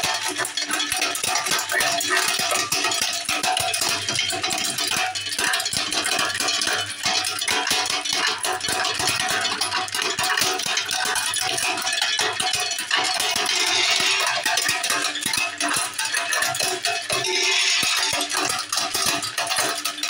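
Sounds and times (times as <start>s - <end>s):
nut cracking machine running: 11.5s - 15.9s, 16.7s - 19.4s
nut shells clattering into tub: 13.3s - 15.2s, 17.1s - 19.2s
hand stirring nuts: 13.5s - 14.4s, 17.1s - 18.7s.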